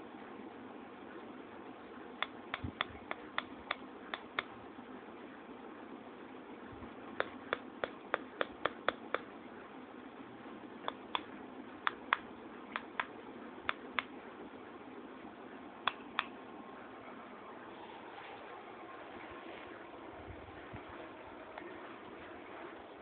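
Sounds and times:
faint steady hiss: 0:00.0 - 0:23.0
sharp clicks: 0:11.9 - 0:14.1, 0:15.8 - 0:16.4.

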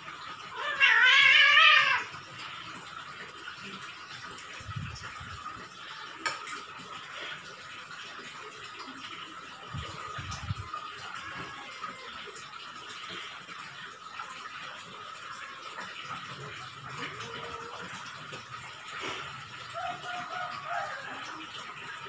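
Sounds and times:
cat meowing: 0:00.5 - 0:02.1, 0:10.9 - 0:12.3.

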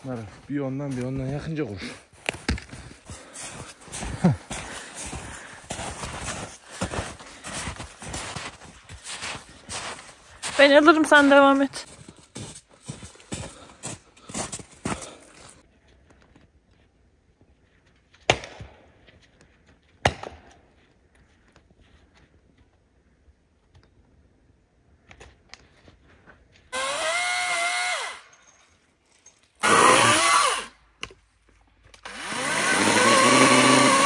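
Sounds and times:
power tool motor whining: 0:26.7 - 0:28.2, 0:29.6 - 0:30.7, 0:32.0 - 0:34.0.

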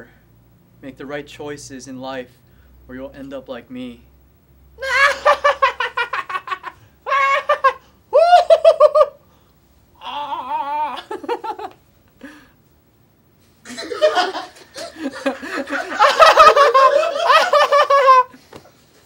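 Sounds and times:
person laughing: 0:04.8 - 0:09.2, 0:10.1 - 0:11.8, 0:13.7 - 0:18.4.

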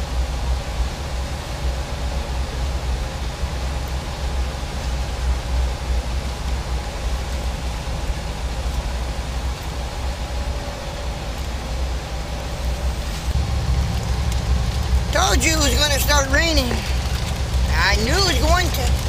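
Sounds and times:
road noise: 0:06.5 - 0:19.0
diesel truck engine rumble: 0:10.2 - 0:19.0.

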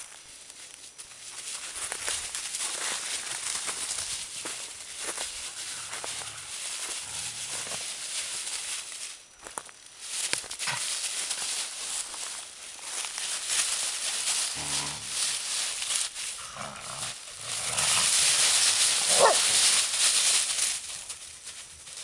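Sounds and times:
dry leaves rustling: 0:00.0 - 0:22.0
dogs growling: 0:05.7 - 0:07.8, 0:14.5 - 0:15.3, 0:16.3 - 0:19.8
dog yelping: 0:19.1 - 0:19.5.

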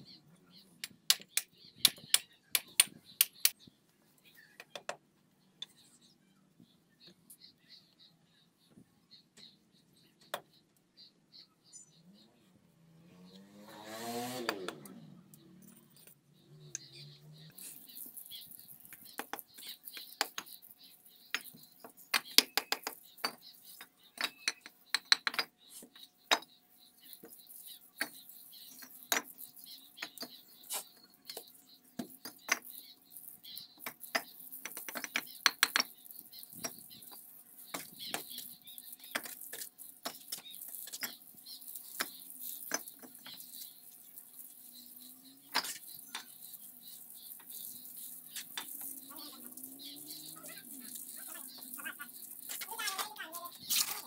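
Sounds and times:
bricks tapped into place: 0:24.2 - 0:25.5, 0:33.8 - 0:36.0.

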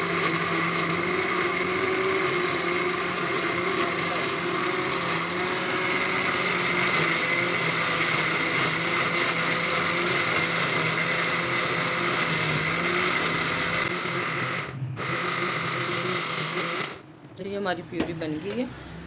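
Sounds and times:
blender motor whirring: 0:00.0 - 0:17.1.

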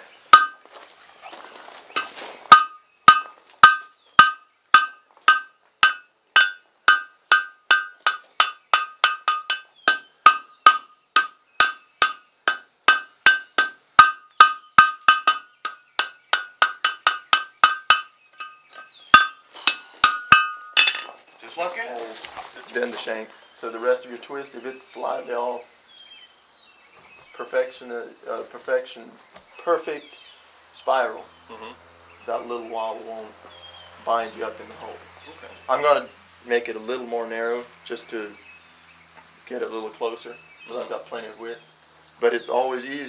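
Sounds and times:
hammer blows on an anvil: 0:00.3 - 0:00.6, 0:02.5 - 0:21.1.

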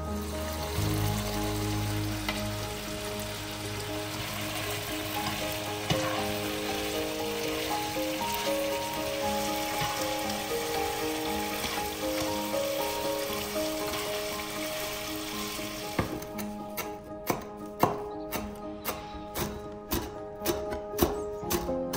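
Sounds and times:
food sizzling in oil: 0:00.0 - 0:16.3
soft background music: 0:00.0 - 0:21.9.

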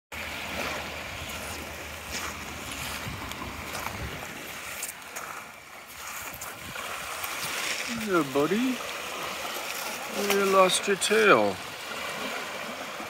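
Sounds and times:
gentle surf: 0:00.1 - 0:13.0
wind rumbling on microphone: 0:00.4 - 0:10.2
footsteps crunching on sand: 0:00.5 - 0:10.9.

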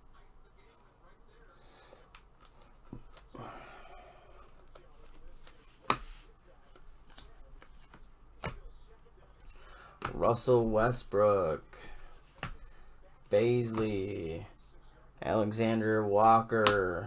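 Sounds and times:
cards sliding and rustling: 0:04.4 - 0:08.6.

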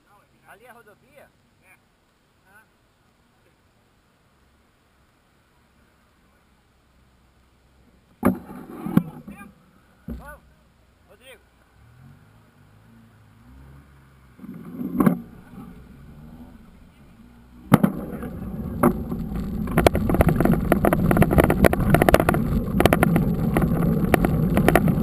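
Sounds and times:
thump: 0:08.2 - 0:10.4, 0:14.4 - 0:15.8, 0:17.6 - 0:25.0
wind rumble on microphone: 0:14.4 - 0:25.0
bike rattling clicks: 0:17.7 - 0:25.0.

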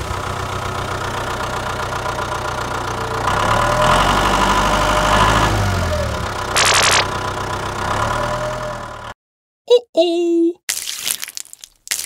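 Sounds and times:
toy tractor engine drone: 0:06.6 - 0:07.2.

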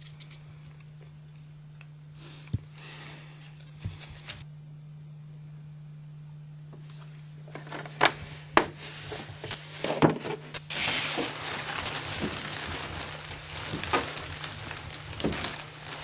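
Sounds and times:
steady rushing hiss: 0:10.7 - 0:16.0.

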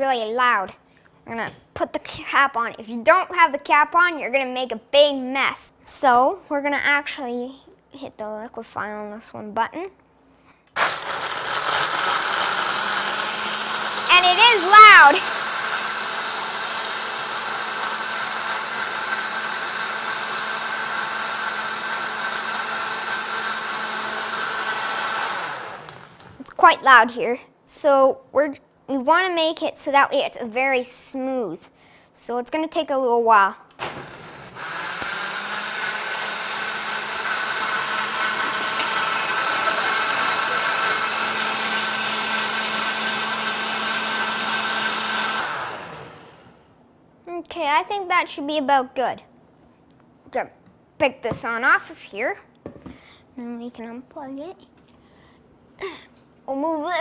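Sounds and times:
blender running: 0:10.8 - 0:26.4, 0:33.8 - 0:46.6.

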